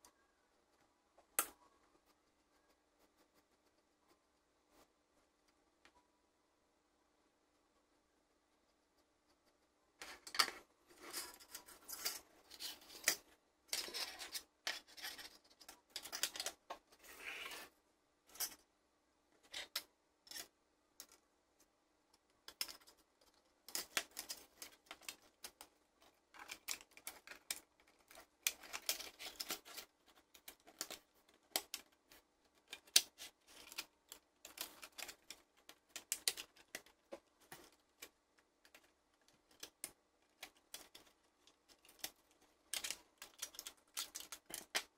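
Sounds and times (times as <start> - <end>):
plastic parts clicking and tapping: 9.3 - 17.0, 19.4 - 21.3, 22.1 - 44.9.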